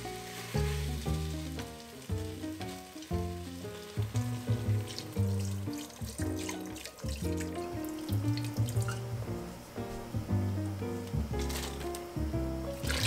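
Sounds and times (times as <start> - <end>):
chopsticks stirring in a pot: 0.0 - 7.6
broth pouring from a carton: 0.0 - 9.0
background music: 0.0 - 13.0
beef sizzling in a pot: 0.0 - 13.0.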